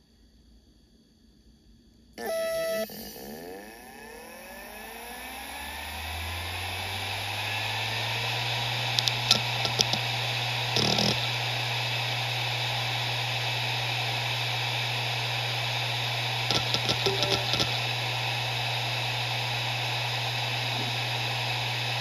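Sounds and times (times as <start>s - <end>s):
hard drive spinning hum: 2.2s - 22.0s
hard drive seek clicks: 8.9s - 11.3s, 16.5s - 17.8s.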